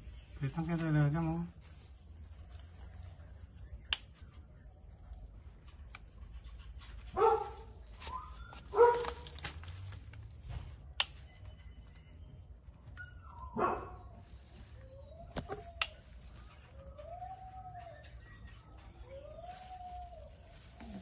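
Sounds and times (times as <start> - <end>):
garden scissors snip: 3.8 - 4.4, 10.9 - 11.5, 15.3 - 16.2
dog barking: 7.1 - 9.3, 13.5 - 14.1.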